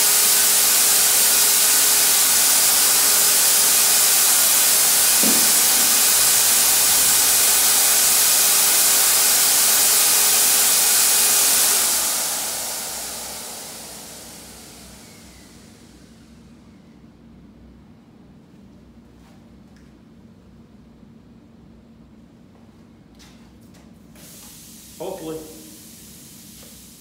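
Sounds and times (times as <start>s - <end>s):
paint sprayer turbine running: 0.0s - 16.7s.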